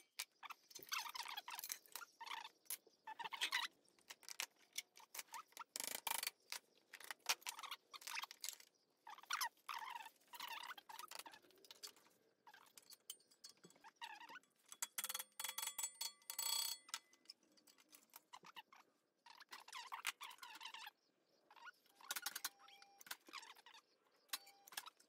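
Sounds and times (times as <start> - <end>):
metal tools clinking on workbench: 12.7 - 18.0.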